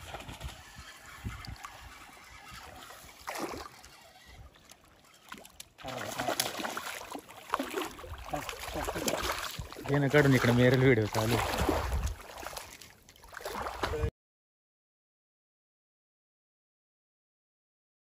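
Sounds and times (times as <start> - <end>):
water splashing: 0.0 - 14.1.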